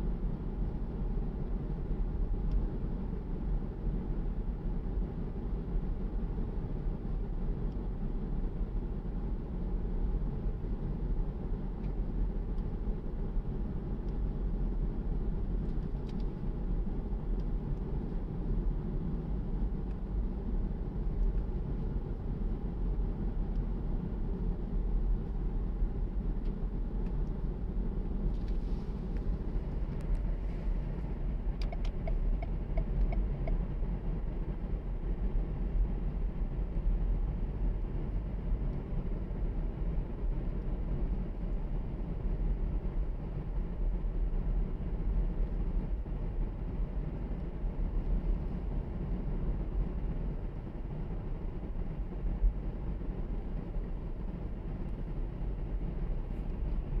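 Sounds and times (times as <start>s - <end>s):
car interior road rumble: 0.0s - 57.0s.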